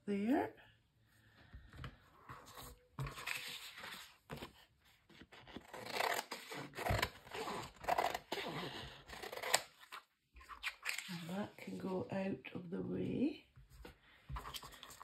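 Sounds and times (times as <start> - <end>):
paper rustling: 2.2 - 5.6.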